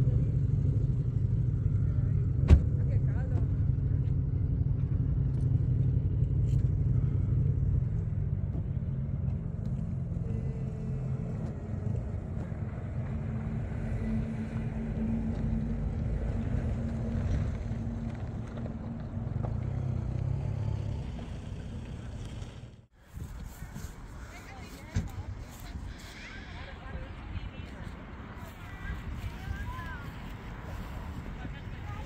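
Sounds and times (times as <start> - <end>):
engine running with low rumble: 0.0 - 32.0.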